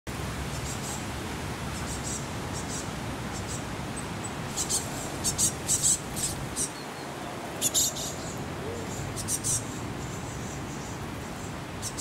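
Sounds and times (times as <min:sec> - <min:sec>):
birds giving short high chirps: 0:04.5 - 0:12.0.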